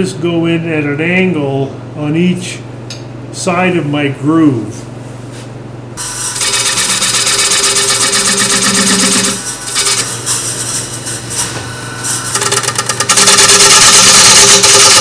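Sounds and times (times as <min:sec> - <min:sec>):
tool cutting wood on lathe: 0:06.0 - 0:10.8, 0:12.2 - 0:15.0
lathe humming: 0:06.0 - 0:15.0.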